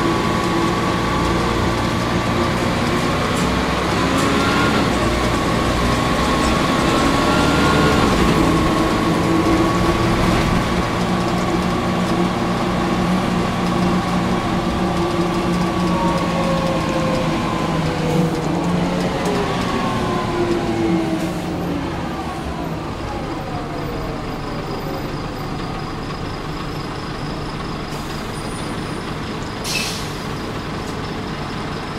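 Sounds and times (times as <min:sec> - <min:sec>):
bus diesel engine whining: 0:00.0 - 0:31.9
short hiss of air: 0:29.6 - 0:30.2.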